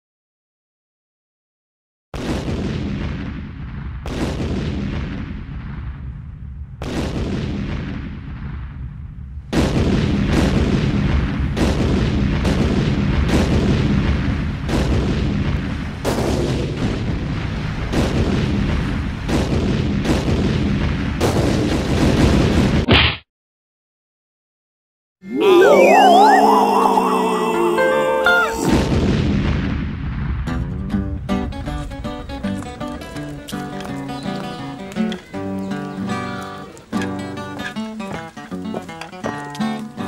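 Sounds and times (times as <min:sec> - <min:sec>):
short high tone: 0:25.3 - 0:28.8.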